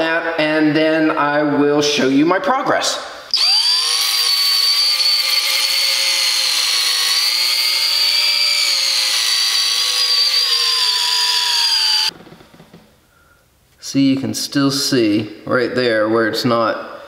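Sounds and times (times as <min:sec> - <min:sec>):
drill sanding metal wheel: 0:03.4 - 0:12.2.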